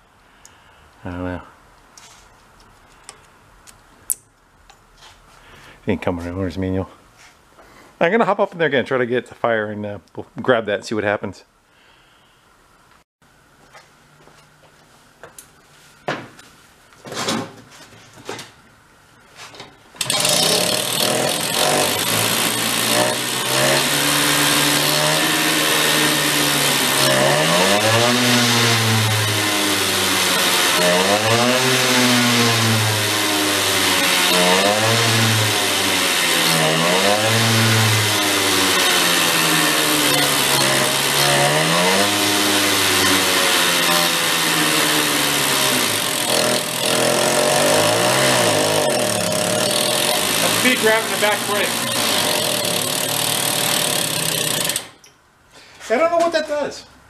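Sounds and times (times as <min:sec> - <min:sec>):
mini bike engine revving: 0:20.0 - 0:55.0.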